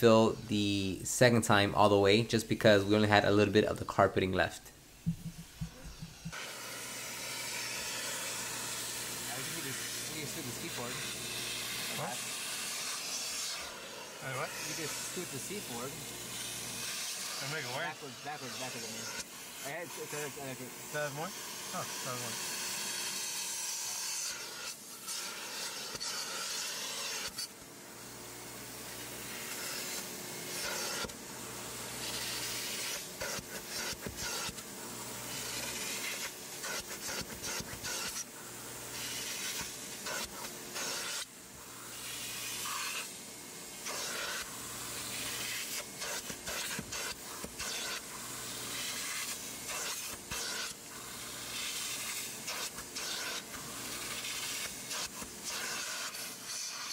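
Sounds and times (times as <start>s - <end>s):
vacuum suction hiss: 0.0s - 56.9s
low hum: 4.8s - 6.3s.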